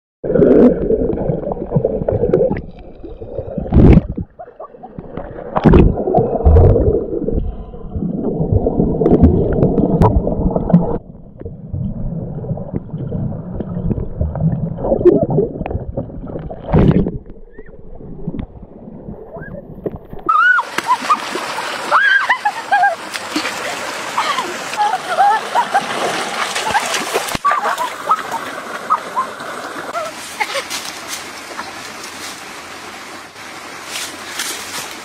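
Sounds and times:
gurgling water underwater: 0:00.2 - 0:20.3.

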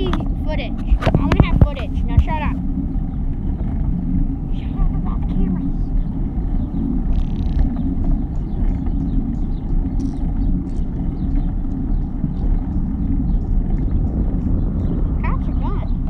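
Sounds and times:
wind buffeting microphone: 0:00.0 - 0:16.0
bicycle clicks and rattles: 0:06.1 - 0:15.1.

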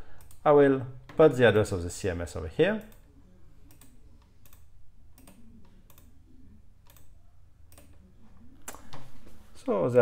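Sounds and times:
computer mouse clicking: 0:00.2 - 0:00.4, 0:02.8 - 0:06.2, 0:06.8 - 0:07.1, 0:07.7 - 0:09.1.

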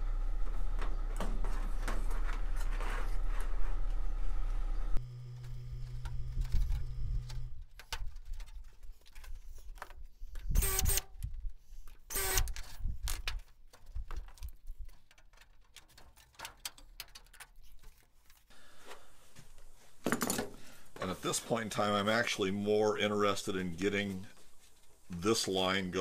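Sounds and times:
sheet aluminium clicks and rattles: 0:07.6 - 0:10.6, 0:11.9 - 0:18.4.

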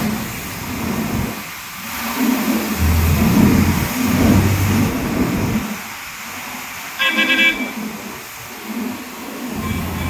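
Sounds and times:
hydraulic motor humming: 0:02.8 - 0:05.6
stuttering high-pitched tone: 0:02.8 - 0:05.6.

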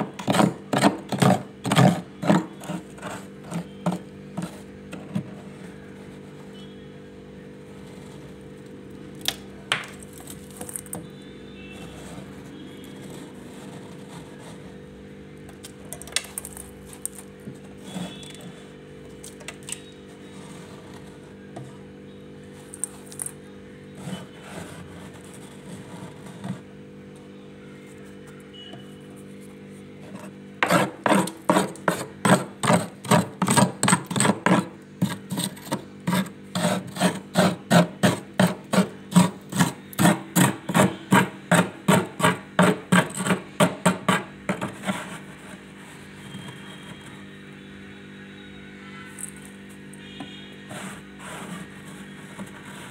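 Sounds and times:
spoon scraping frost: 0:00.0 - 0:06.7, 0:09.9 - 0:14.8, 0:16.2 - 0:21.4, 0:22.5 - 0:26.7, 0:28.9 - 0:47.2, 0:50.3 - 0:52.9.

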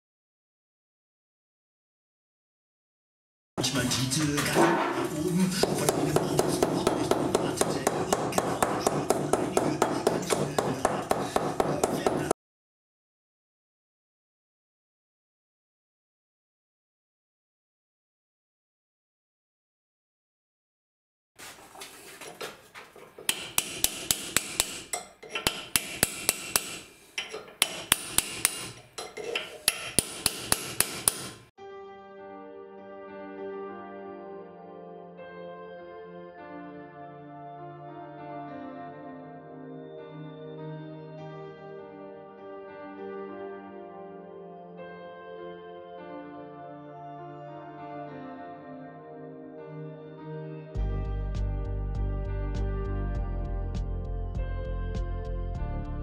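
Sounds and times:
music: 0:03.6 - 0:12.3, 0:31.4 - 0:56.0
hammer tapping on metal: 0:05.6 - 0:12.3, 0:23.2 - 0:31.5.

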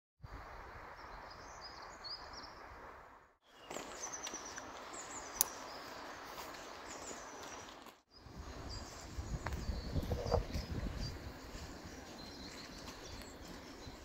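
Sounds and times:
small birds chirping: 0:03.4 - 0:14.0.

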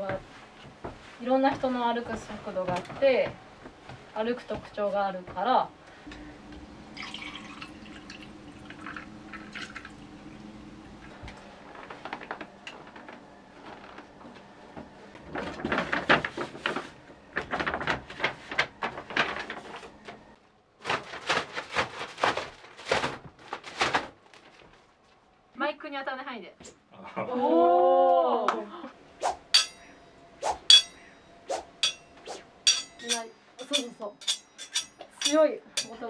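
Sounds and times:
water dripping: 0:06.9 - 0:10.0
water pouring into a paper cup: 0:06.9 - 0:10.1
paper bag rustling and crumpling: 0:11.4 - 0:25.3.

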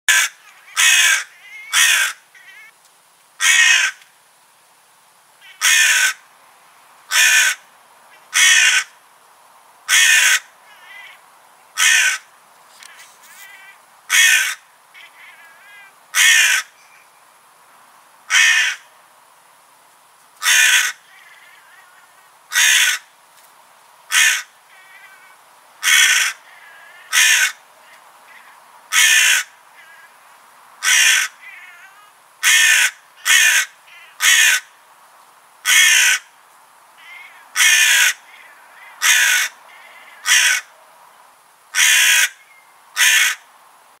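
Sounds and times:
crow cawing: 0:00.1 - 0:02.7, 0:03.4 - 0:04.0, 0:05.4 - 0:06.2, 0:07.1 - 0:07.7, 0:08.3 - 0:09.0, 0:09.9 - 0:11.2, 0:11.8 - 0:16.8, 0:18.3 - 0:18.9, 0:20.4 - 0:23.1, 0:24.1 - 0:30.2, 0:30.8 - 0:34.8, 0:35.6 - 0:36.3, 0:37.0 - 0:40.7, 0:41.8 - 0:42.4, 0:43.0 - 0:43.5.

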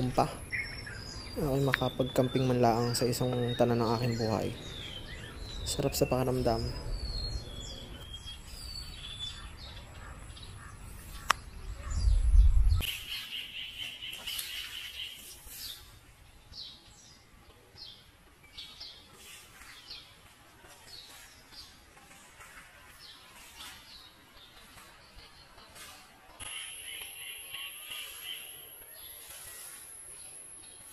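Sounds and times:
bird trill: 0:00.0 - 0:15.8, 0:26.4 - 0:30.9
birds chirping and calling: 0:00.0 - 0:17.2, 0:22.4 - 0:30.9
low rumble: 0:11.6 - 0:12.8.

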